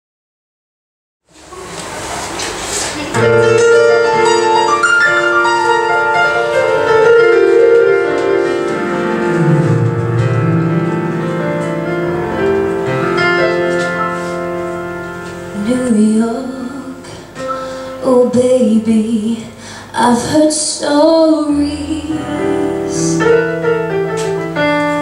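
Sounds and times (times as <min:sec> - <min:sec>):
electronic keyboard piano chords: 0:03.1 - 0:19.5, 0:21.1 - 0:25.0.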